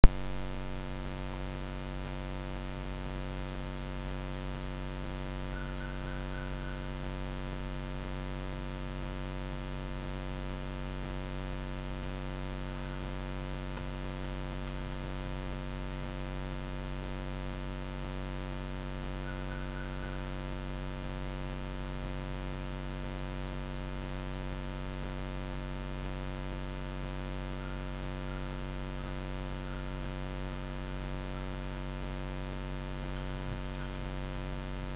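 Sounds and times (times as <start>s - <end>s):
steady electrical hum: 0.0s - 34.9s.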